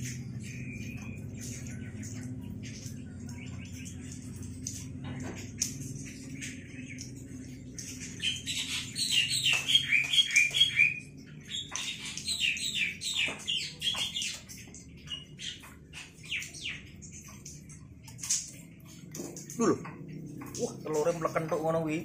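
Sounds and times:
high bird-like chirps: 6.3s - 17.8s.

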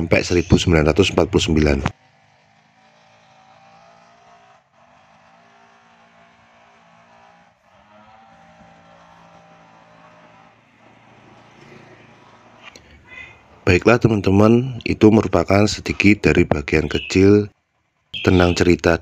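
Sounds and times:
scooter engine humming: 6.8s - 15.1s, 18.2s - 19.0s.

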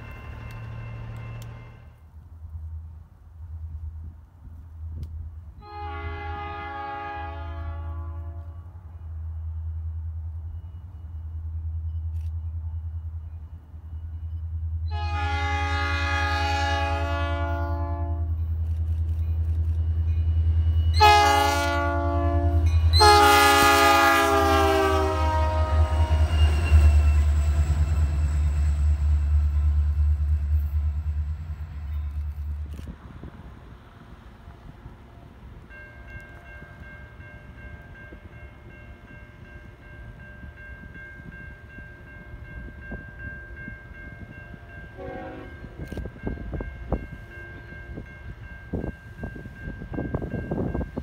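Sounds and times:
locomotive chord horn: 5.6s - 9.0s, 14.8s - 18.4s, 20.9s - 27.6s, 44.9s - 45.9s.

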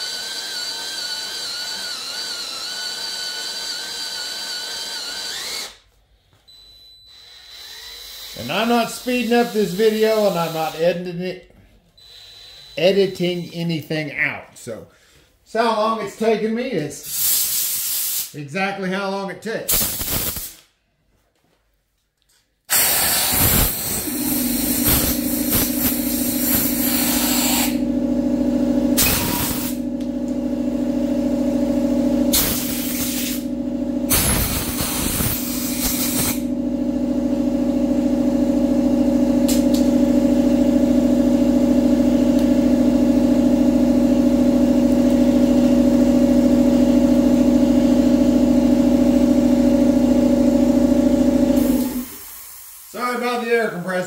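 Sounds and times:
drill boring metal: 0.0s - 5.8s, 7.1s - 11.0s, 12.0s - 13.0s, 22.7s - 27.8s, 29.0s - 29.8s, 34.1s - 36.4s
steady motor hum: 23.3s - 52.6s.

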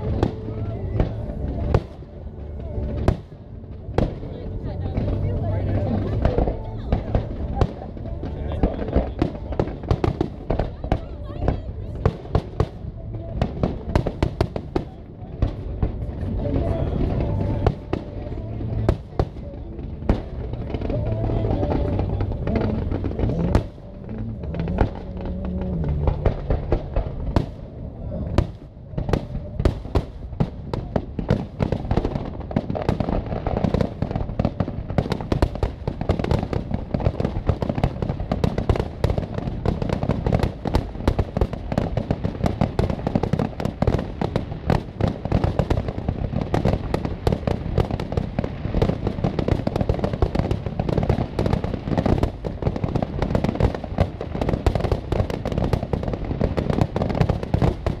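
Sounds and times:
fireworks bangs and crackle: 0.0s - 58.0s.

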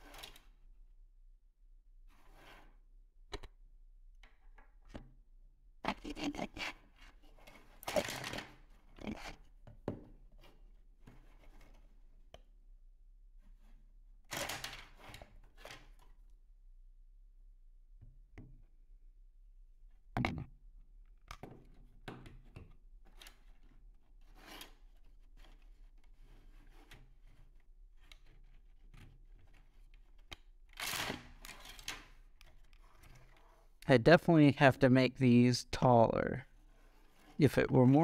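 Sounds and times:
plastic rubbing and knocking on wood: 20.2s - 20.5s.

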